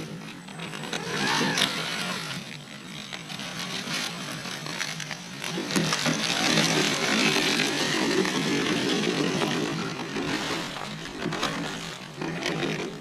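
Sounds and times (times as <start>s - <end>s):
electric motor and gears whirring: 0.0s - 13.0s.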